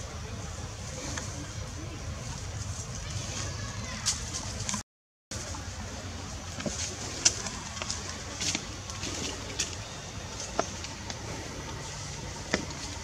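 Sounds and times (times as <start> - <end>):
steady low rumble: 5.3 - 13.0.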